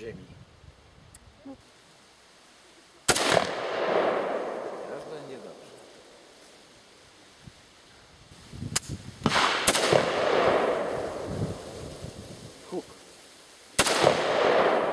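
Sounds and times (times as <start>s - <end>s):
rifle shots echoing: 3.1s - 5.6s, 9.2s - 11.3s, 13.8s - 14.9s.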